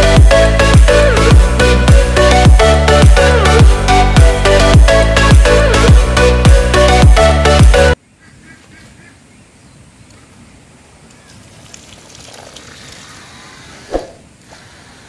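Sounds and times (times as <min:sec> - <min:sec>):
water splashing into bucket: 0:11.4 - 0:13.2.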